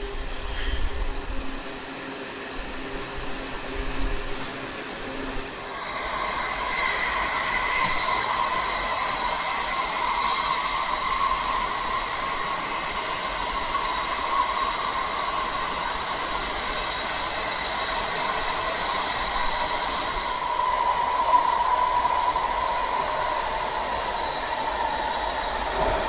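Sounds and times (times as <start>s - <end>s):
subway car rumble and whine: 0.0s - 26.0s.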